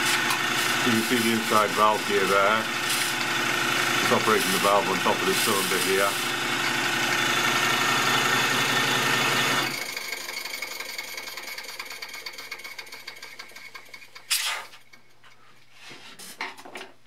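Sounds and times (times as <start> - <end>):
model steam engine beating: 0.0 - 9.2.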